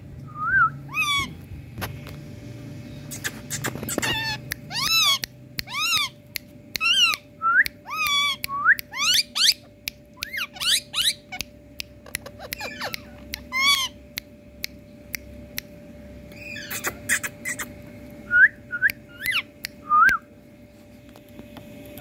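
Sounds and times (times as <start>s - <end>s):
parakeets whistled calls: 0.4s - 1.4s, 2.9s - 6.2s, 6.8s - 11.4s, 12.2s - 14.0s, 16.3s - 20.1s.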